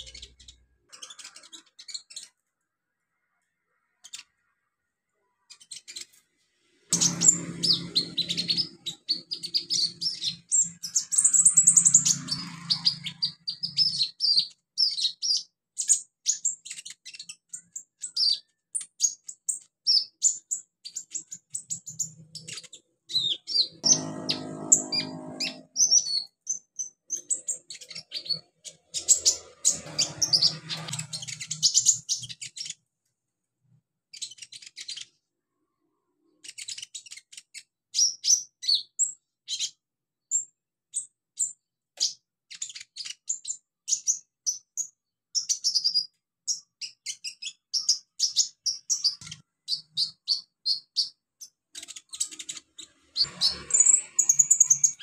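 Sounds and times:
sunbird singing high chirps: 6.9 - 32.8, 51.8 - 55.0.

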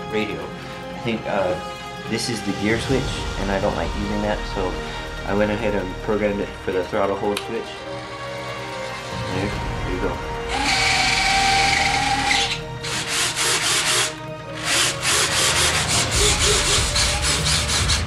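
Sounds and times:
retract motors whirring: 10.5 - 18.0.

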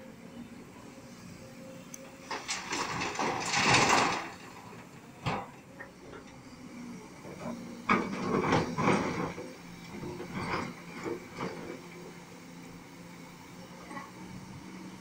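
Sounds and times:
excavator diesel engine running: 0.0 - 15.0
rock and soil dumped into truck: 2.3 - 5.5.

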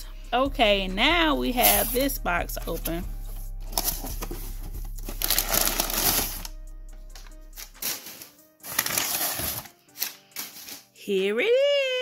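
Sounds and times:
background music: 0.0 - 12.0
packing paper rustling and crumpling: 3.7 - 6.5, 7.2 - 11.0.

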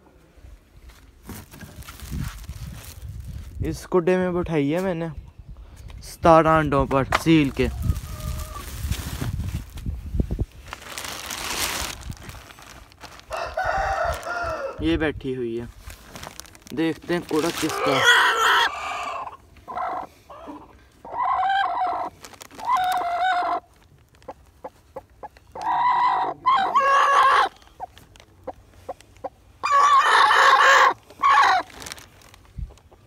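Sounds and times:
chickens squawking: 7.4 - 9.0, 13.1 - 15.0, 17.3 - 23.7, 24.6 - 32.0.

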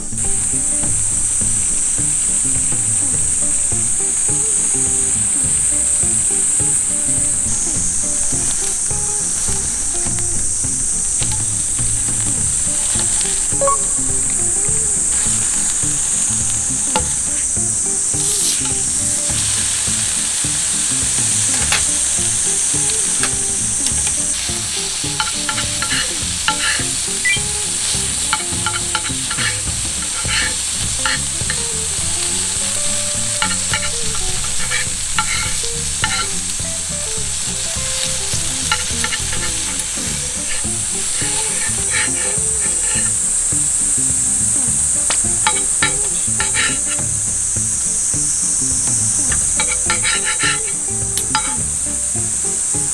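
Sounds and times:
steaks sizzling on a griddle: 0.0 - 52.9
knife and spatula tapping metal: 18.2 - 43.2, 45.0 - 47.1, 49.2 - 52.8.

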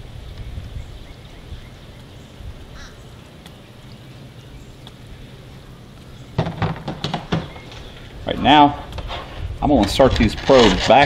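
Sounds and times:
low outdoor rumble: 0.0 - 11.0
clattering and knocks at table: 6.4 - 7.8.

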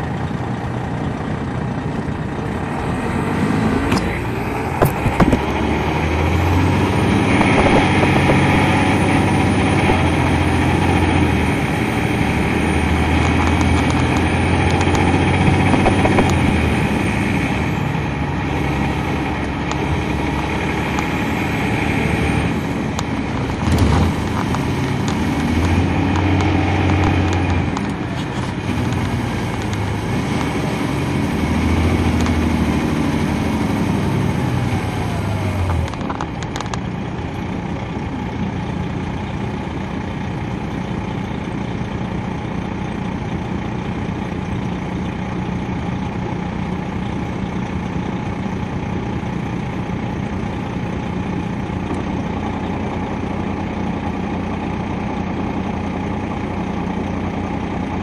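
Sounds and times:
bus diesel engine drone: 0.0 - 58.0
brief thump: 4.8 - 5.5.

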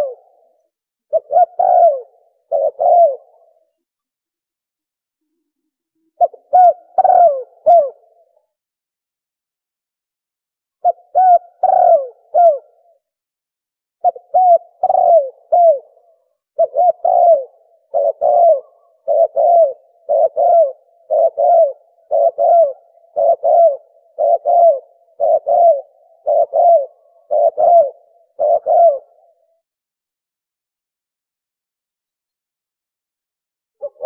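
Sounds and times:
dove cooing: 0.0 - 3.8, 6.0 - 8.4, 10.8 - 13.0, 14.0 - 29.6, 33.8 - 34.0.

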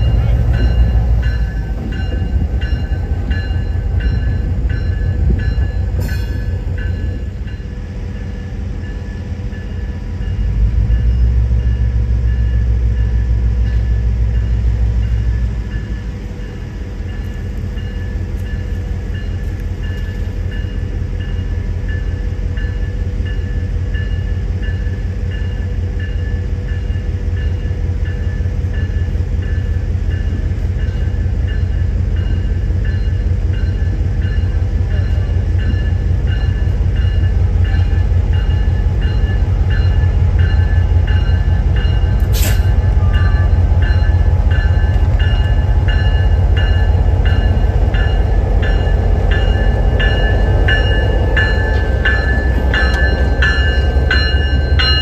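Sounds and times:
diesel locomotive engine rumbling: 0.0 - 55.0
sharp hiss: 42.2 - 42.8
bell ringing: 43.0 - 55.0.

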